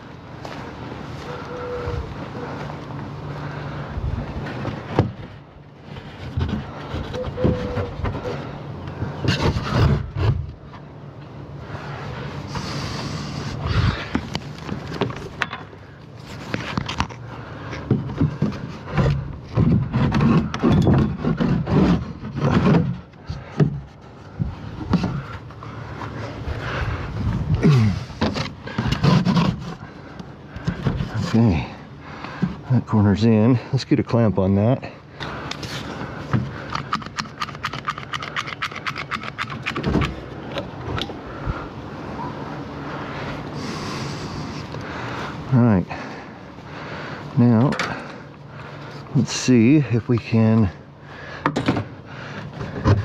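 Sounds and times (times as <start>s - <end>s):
wood scraping and knocking: 4.4s - 8.4s, 17.8s - 25.4s, 28.1s - 29.9s, 52.5s - 53.0s.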